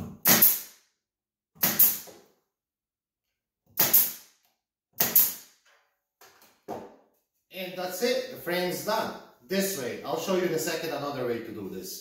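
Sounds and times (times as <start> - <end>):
nail gun firing into wood: 0.2 - 0.8, 1.6 - 2.1, 3.8 - 4.3, 5.0 - 5.6.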